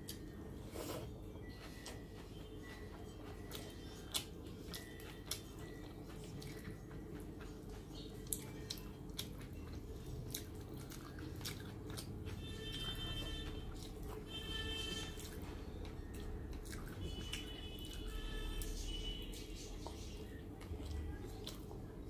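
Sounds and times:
chewing with mouth closed: 0:00.0 - 0:22.0.

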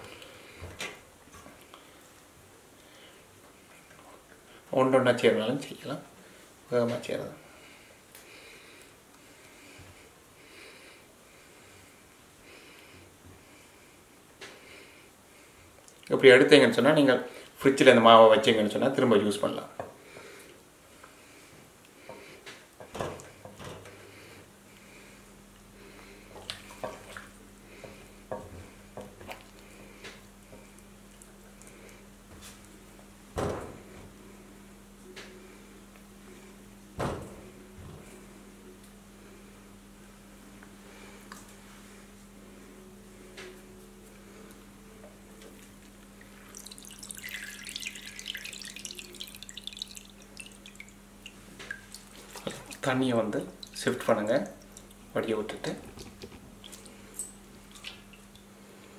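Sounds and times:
water draining and dripping into pot: 0:46.5 - 0:52.9.

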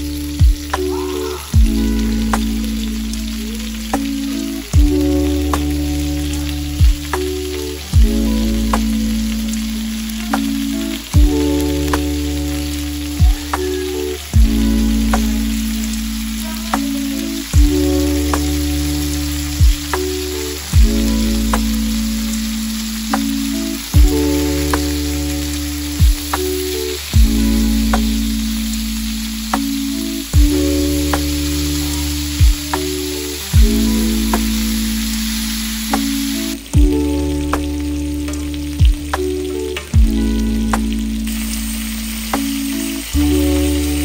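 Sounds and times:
background music with held chords: 0:00.0 - 0:44.0
meat sizzling in a pan: 0:00.0 - 0:44.0
deep falling bass hit: 0:01.6 - 0:02.5, 0:40.0 - 0:40.2.

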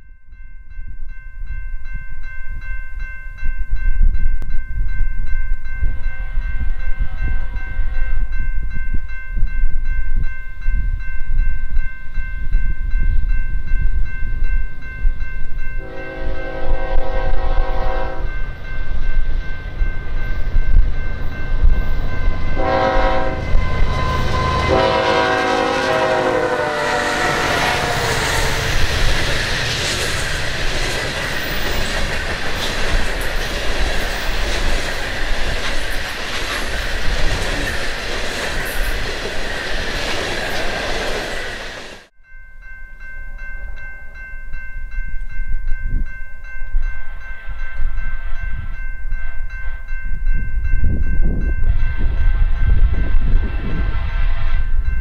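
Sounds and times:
train wheel and rail noise: 0:00.9 - 0:42.2, 0:43.4 - 0:55.0
train horn blasts: 0:05.9 - 0:08.2, 0:15.8 - 0:18.6, 0:21.8 - 0:29.0
diesel locomotive engine rumble: 0:15.8 - 0:42.1.

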